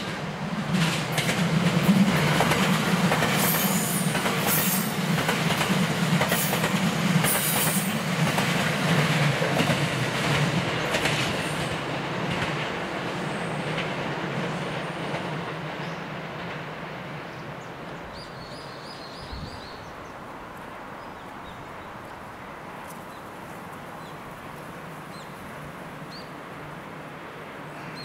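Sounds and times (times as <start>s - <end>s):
train wheels clattering over joints: 0.0s - 15.5s
train low hum: 0.0s - 28.0s.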